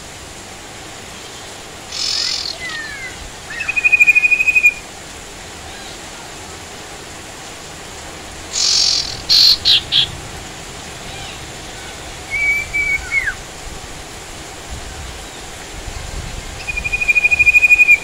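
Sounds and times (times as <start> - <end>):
rain hissing: 0.0 - 18.0
bird calling and trilling: 1.3 - 4.8, 8.5 - 10.2, 11.0 - 13.4, 16.6 - 18.0.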